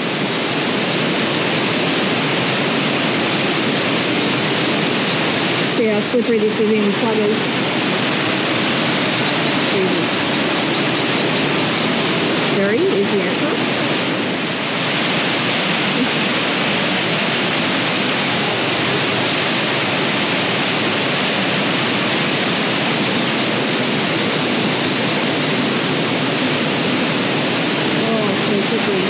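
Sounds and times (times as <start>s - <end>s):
water rushing over rocks: 0.0s - 29.0s.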